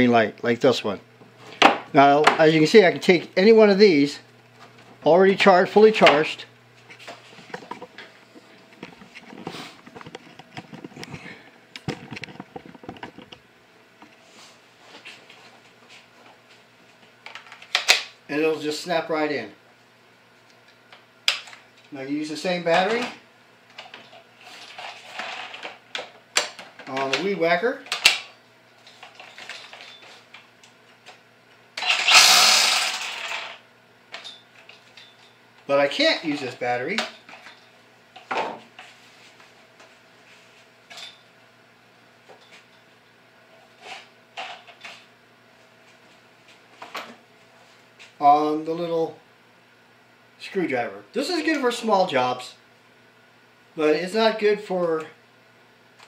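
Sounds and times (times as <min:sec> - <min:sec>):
faint steady hum: 0:00.0 - 0:56.0
footsteps and handling knocks: 0:06.0 - 0:13.4
string trimmer motor running: 0:31.8 - 0:33.6.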